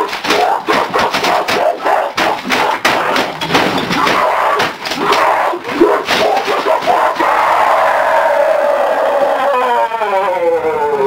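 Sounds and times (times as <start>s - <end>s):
keyboard smashed against desk: 0.1s - 5.4s.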